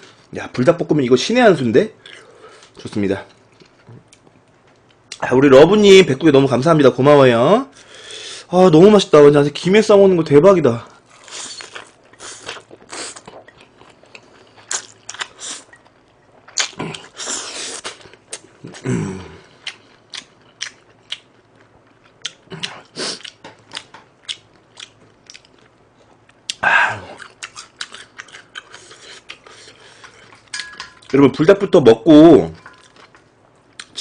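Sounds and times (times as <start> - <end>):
wet chewing and crunching: 11.1 - 18.8, 19.5 - 31.2.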